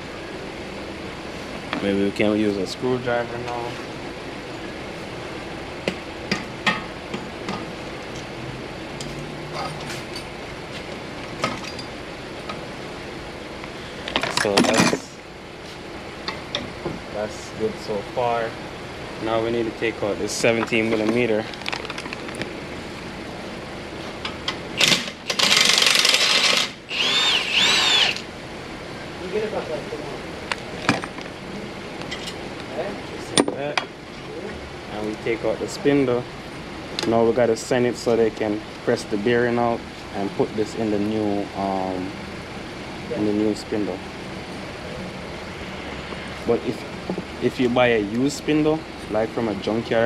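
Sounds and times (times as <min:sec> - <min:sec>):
background hiss: 0:00.0 - 0:50.0
impact wrench whining: 0:24.8 - 0:28.3.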